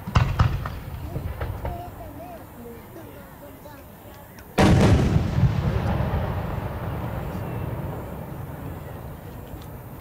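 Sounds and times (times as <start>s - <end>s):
firework boom rumbling echo: 0.0s - 1.9s, 4.6s - 9.9s
faint firework crackles: 0.0s - 10.0s.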